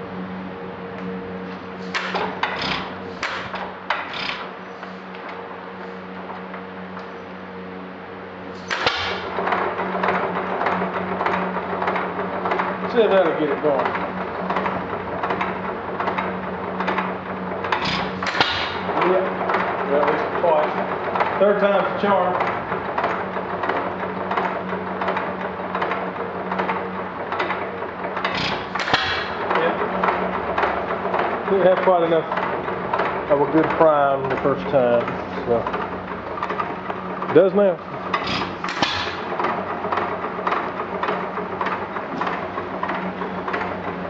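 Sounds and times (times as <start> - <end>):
gas engine clattering: 0.0 - 44.0
regular mechanical click: 0.9 - 7.3, 8.6 - 44.0
engine bang: 8.6 - 13.9.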